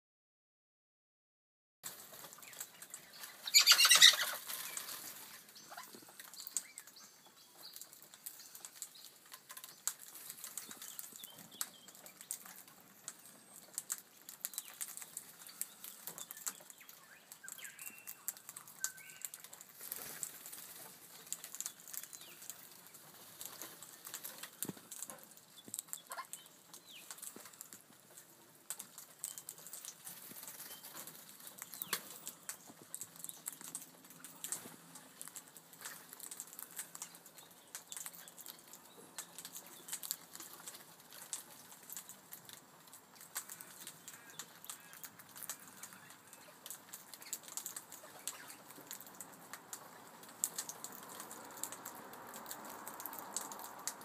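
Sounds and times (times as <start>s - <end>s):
parrots flurry: 1.8s - 54.0s.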